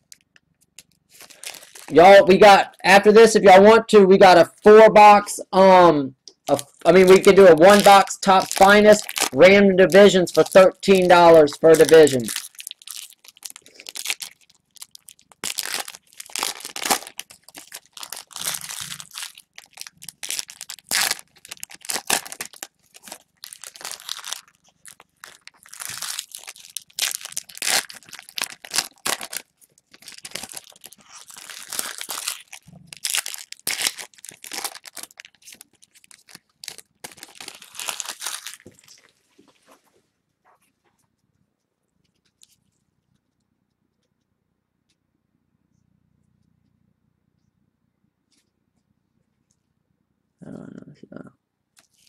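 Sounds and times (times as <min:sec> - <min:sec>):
packaging torn and crinkled: 0:00.8 - 0:02.0, 0:06.5 - 0:39.1, 0:51.8 - 0:52.0.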